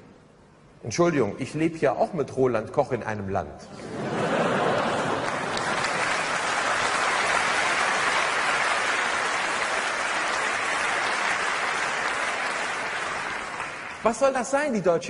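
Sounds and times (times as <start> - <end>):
audience applauding: 4.2 - 14.4.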